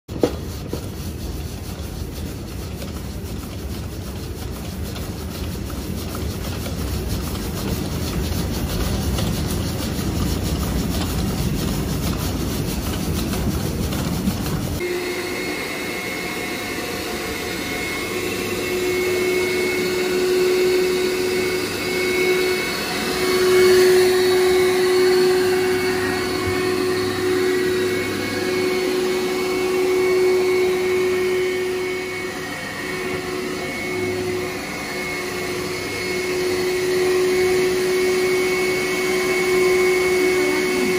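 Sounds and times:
floor scrubber humming: 0.1s - 40.9s
vacuum motor whine: 14.8s - 40.9s.

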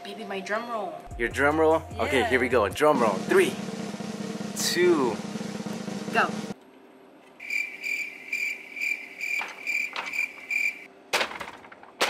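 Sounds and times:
cricket chirping: 7.4s - 10.9s.

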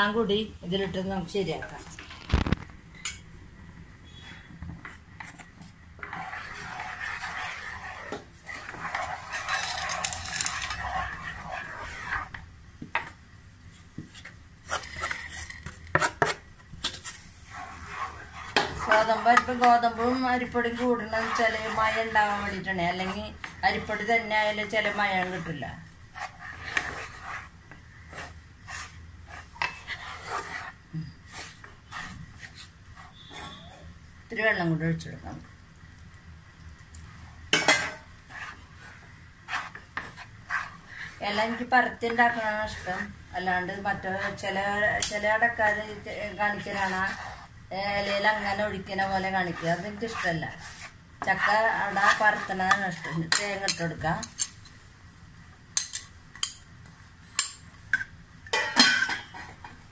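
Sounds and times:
spoon scraping flour in pan: 4.1s - 33.6s, 37.5s - 54.8s.

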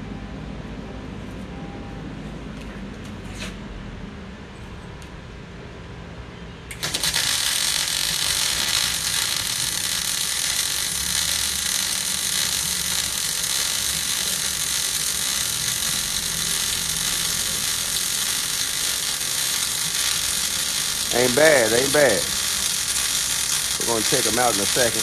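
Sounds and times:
welding arc buzzing: 6.7s - 25.0s.

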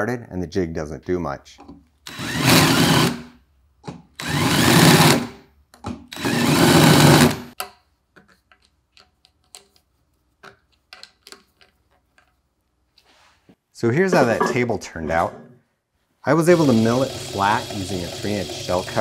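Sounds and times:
drill cutting into steel: 2.1s - 3.3s, 4.2s - 5.4s, 6.1s - 7.6s, 16.5s - 19.0s.

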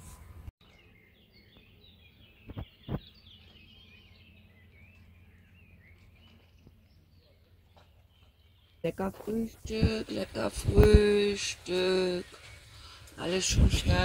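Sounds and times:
small birds twittering: 0.6s - 14.0s.

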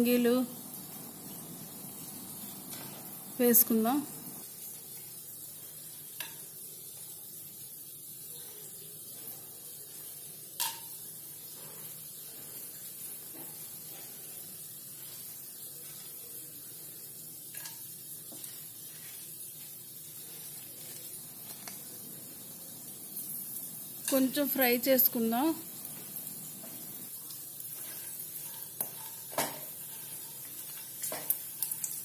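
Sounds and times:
spices sizzling in oil: 0.0s - 32.0s
spices dropping into pan clicks: 10.6s - 11.0s, 27.1s - 29.8s, 30.4s - 32.0s.

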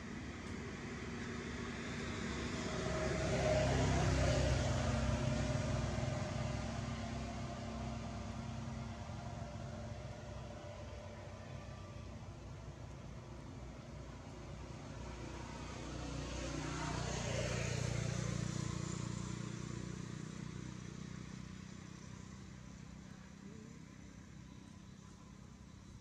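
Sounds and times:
motor vehicle passing by: 0.0s - 25.9s.

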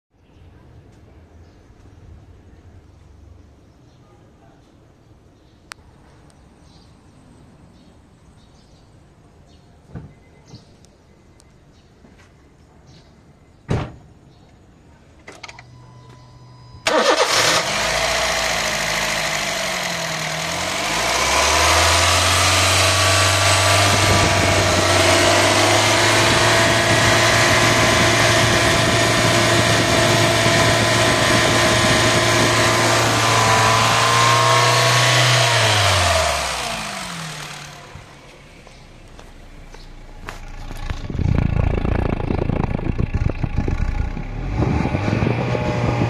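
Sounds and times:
car engine starting and idling: 15.4s - 46.0s
car engine running down: 16.8s - 46.0s.

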